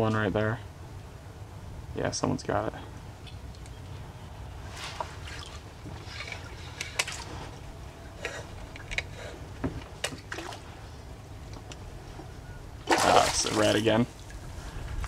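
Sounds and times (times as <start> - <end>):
water sloshing against hull: 4.6 - 15.0
short splashes: 4.7 - 7.6, 10.0 - 10.8, 12.8 - 14.4
wind rumble on microphone: 13.9 - 15.0.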